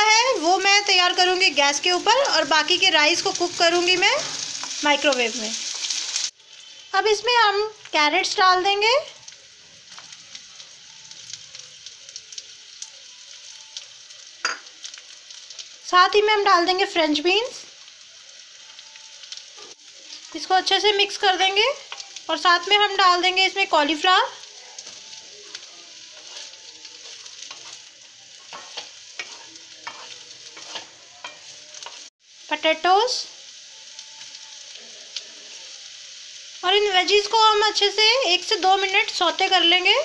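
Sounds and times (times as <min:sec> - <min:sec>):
vegetables sizzling in hot oil: 0:00.0 - 0:40.0
spatula scraping pan: 0:26.2 - 0:32.1.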